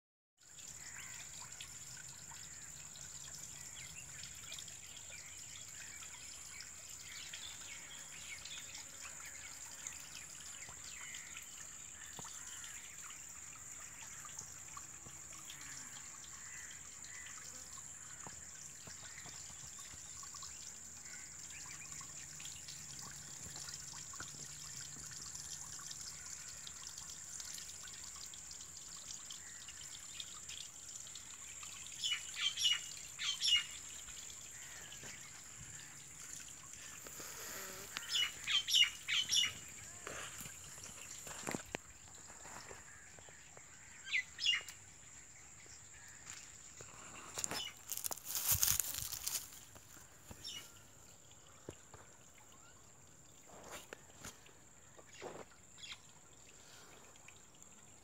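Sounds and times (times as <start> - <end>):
birds chirping: 36.8 - 41.7.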